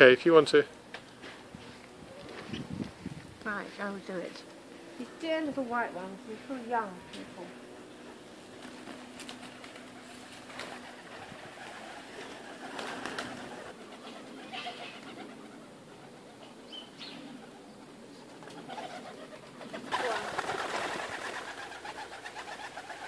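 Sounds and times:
wings flapping: 0.9s - 4.2s, 5.0s - 23.0s
sharp wing claps: 8.6s - 13.7s.

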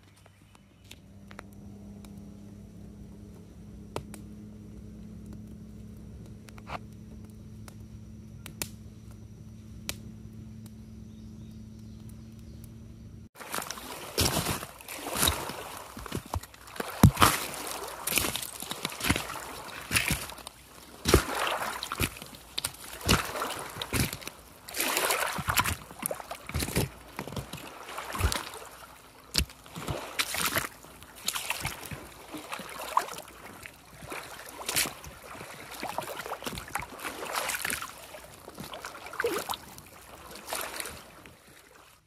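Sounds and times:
waves lapping on rocky shore: 13.4s - 42.0s.

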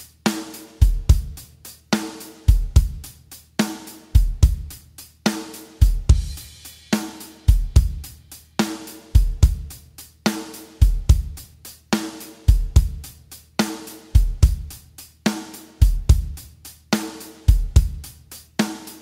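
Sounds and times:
hi-hat: 0.0s - 19.0s
snare drum: 0.0s - 19.0s
kick drum: 2.5s - 3.1s, 4.2s - 4.8s, 5.8s - 6.4s, 7.5s - 8.2s, 9.2s - 9.8s, 10.8s - 11.4s, 12.5s - 13.0s, 14.2s - 14.8s, 15.8s - 16.5s, 17.5s - 18.1s.

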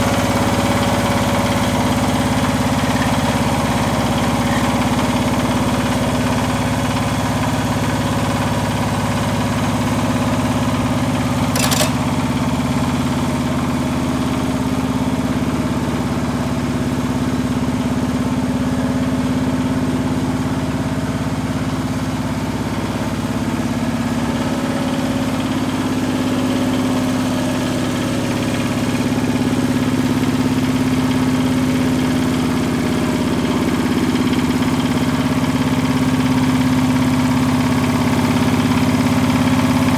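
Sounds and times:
tiller diesel engine running: 0.0s - 39.9s
sharp click: 11.5s - 12.1s.

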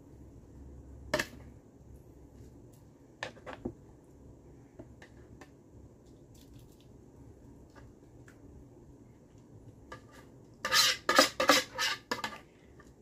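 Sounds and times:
utensil scraping plastic bowl: 9.9s - 12.5s.

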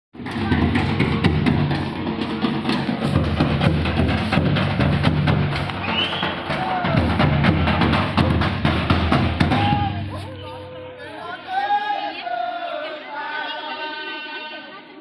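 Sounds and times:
drums beating dance rhythm: 0.2s - 11.0s.

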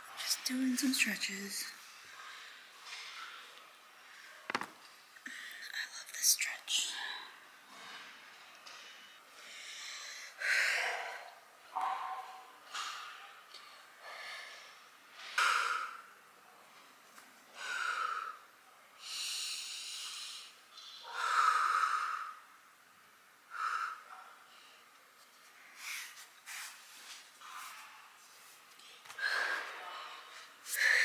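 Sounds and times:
woman breathing hard: 29.1s - 31.0s.

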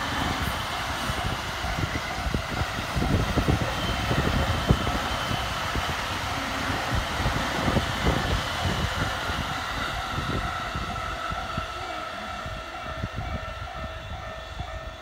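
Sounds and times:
level crossing warning bell: 8.6s - 15.0s.

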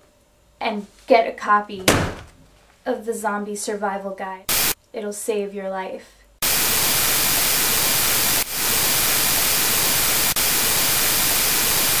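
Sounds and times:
loud static hiss: 4.5s - 4.8s, 6.4s - 12.0s.

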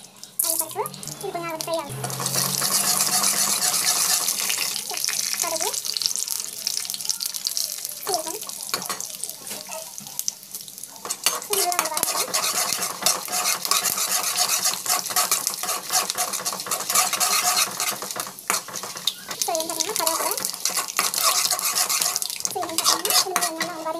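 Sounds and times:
peanuts sizzling in oil: 0.0s - 23.9s
ladle scraping a pan: 0.5s - 5.8s, 11.0s - 23.9s.

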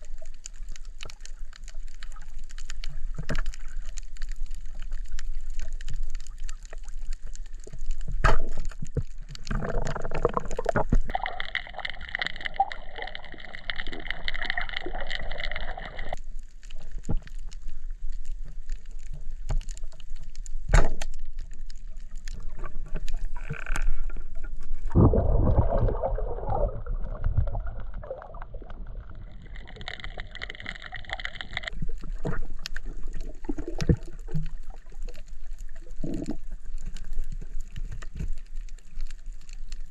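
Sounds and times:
muffled underwater sloshing: 0.0s - 39.9s
hissing bubbling noise: 9.4s - 16.2s, 24.3s - 34.9s.

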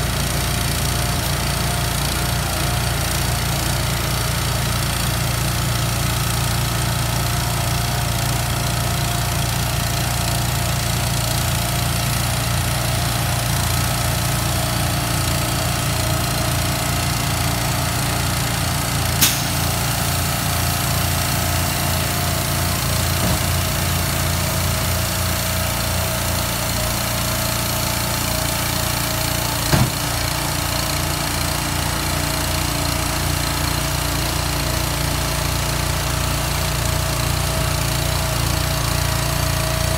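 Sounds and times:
small gas engine running: 0.0s - 39.9s
sharp metal clanks: 19.2s - 19.8s.

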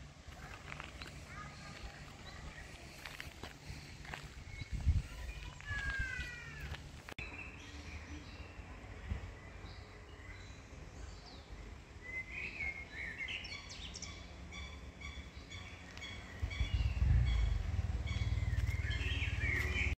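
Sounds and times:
birds singing: 0.3s - 20.0s
loud low rumble: 16.3s - 19.9s.

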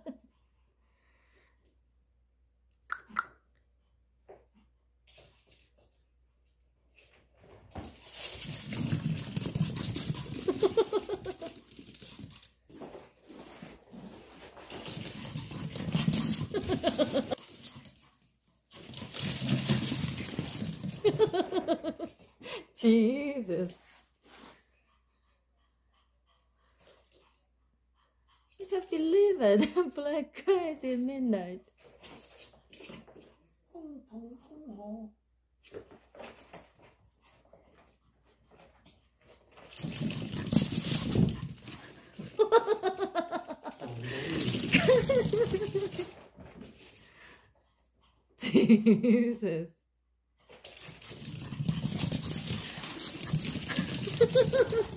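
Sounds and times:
paws scrabbling on wooden floor: 4.3s - 21.6s, 35.6s - 47.4s, 50.4s - 54.9s.

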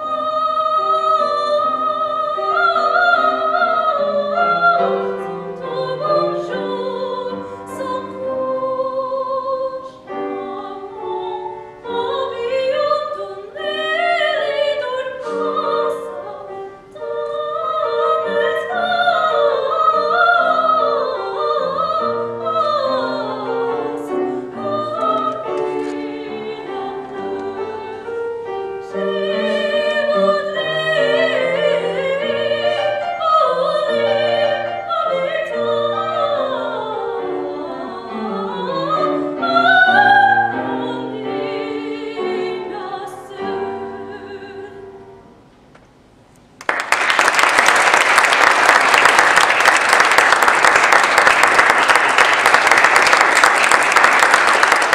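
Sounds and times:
piano accompaniment: 0.0s - 45.7s
classical singer: 0.0s - 54.9s
audience applause: 46.6s - 54.9s.

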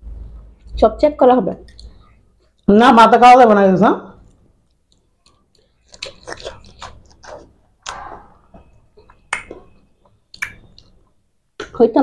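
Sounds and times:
wet mouth eating sounds: 1.6s - 2.7s, 4.2s - 11.8s.

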